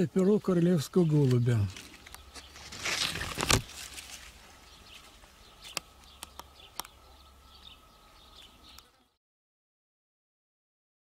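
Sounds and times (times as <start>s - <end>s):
rustling noise: 1.2s - 5.8s
faint bird chirps: 4.3s - 9.2s.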